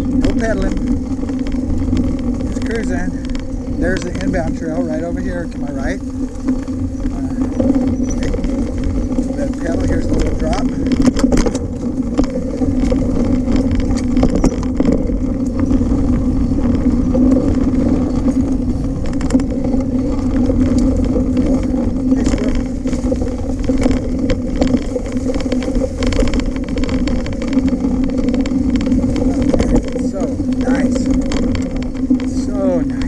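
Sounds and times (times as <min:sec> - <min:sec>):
bike clicking and rattling: 0:00.0 - 0:33.0
bike tyres humming on dirt: 0:00.0 - 0:33.0.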